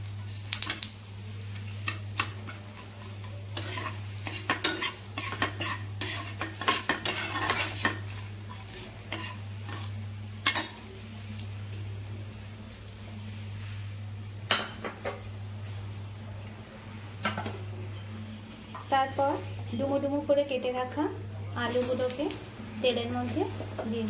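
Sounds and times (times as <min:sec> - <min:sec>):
oil sizzling: 0:00.0 - 0:16.1, 0:21.6 - 0:24.0
steel spatula scraping a frying pan: 0:01.8 - 0:10.8.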